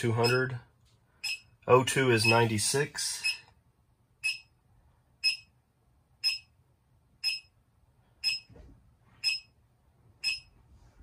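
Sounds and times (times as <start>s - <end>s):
short high electronic beeps: 4.2s - 4.5s.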